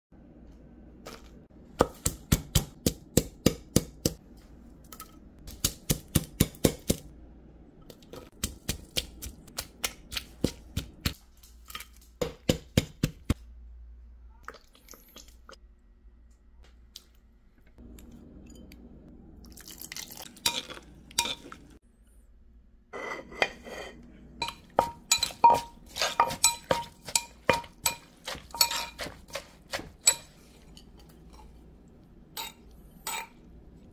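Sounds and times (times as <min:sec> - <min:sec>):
wooden pestle pounding in mortar: 0:01.8 - 0:04.2, 0:05.5 - 0:07.1, 0:12.2 - 0:13.4, 0:24.7 - 0:30.2.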